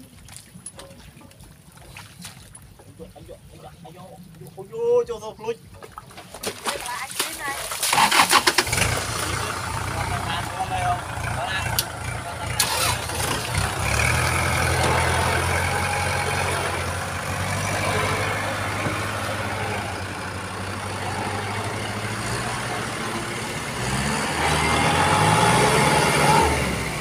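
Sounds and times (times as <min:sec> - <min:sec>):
tractor diesel engine running: 0:07.9 - 0:27.0.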